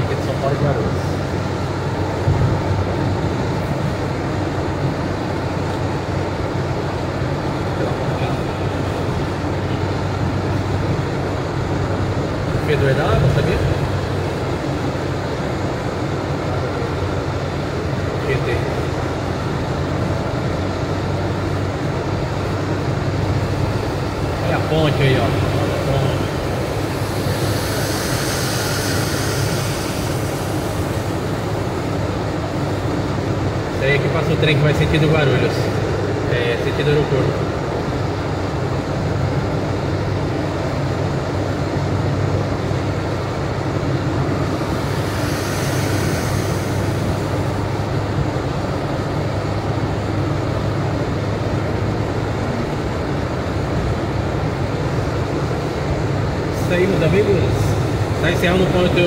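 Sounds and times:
low engine hum: 0.0s - 59.0s
tyres hissing on wet road: 0.0s - 59.0s
tyre hiss on wet road: 23.3s - 33.2s, 43.8s - 50.3s, 56.6s - 59.0s.

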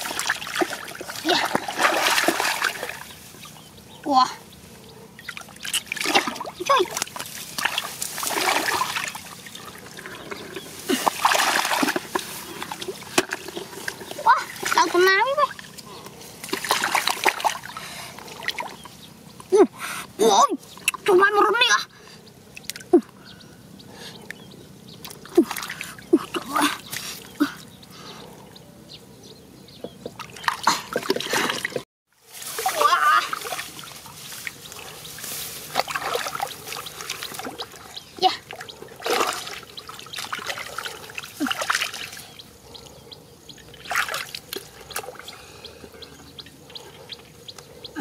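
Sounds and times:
hands splashing muddy water: 0.0s - 3.2s, 5.3s - 15.8s, 16.4s - 18.8s, 30.2s - 37.8s, 38.5s - 42.3s, 43.8s - 45.3s
trickling water: 0.0s - 4.4s, 5.1s - 19.5s, 25.0s - 28.0s, 29.8s - 48.0s.

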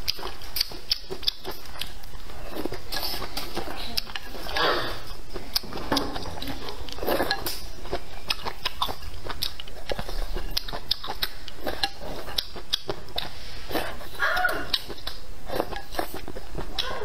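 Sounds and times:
noodles slurped and chewed: 0.0s - 17.0s.

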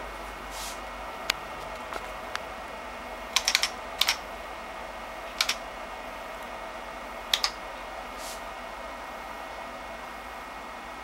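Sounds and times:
keyboard keys clicking: 3.4s - 4.2s, 5.3s - 5.6s, 7.3s - 7.6s.

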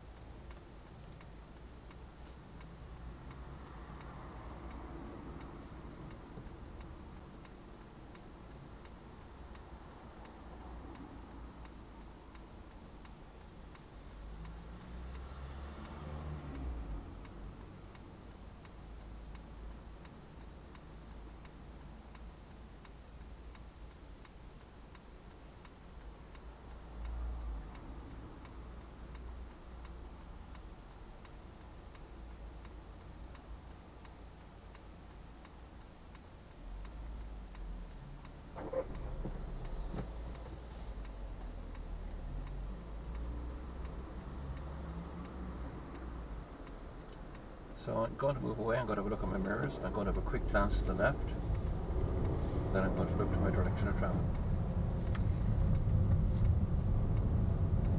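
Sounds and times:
car turn indicator ticking: 0.0s - 57.9s
low rumble: 49.7s - 57.9s.

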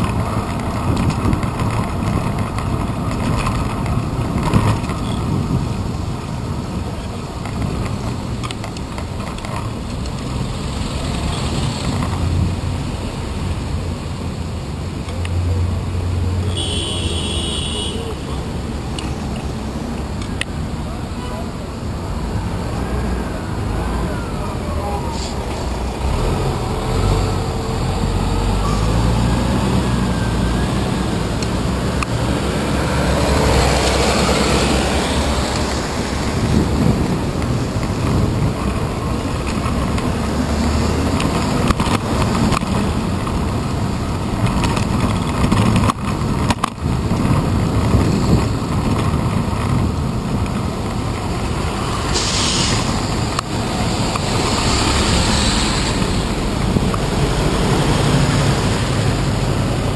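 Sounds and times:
dense street traffic rumble: 0.0s - 59.9s
short hiss: 52.1s - 53.0s.

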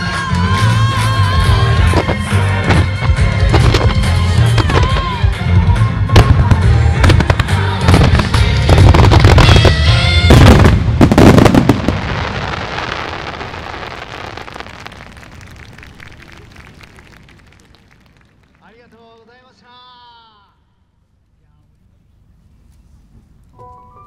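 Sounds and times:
music: 0.0s - 10.8s, 23.5s - 24.0s
fireworks crackling: 0.0s - 19.4s
fireworks bangs: 1.8s - 5.4s, 6.1s - 18.8s.

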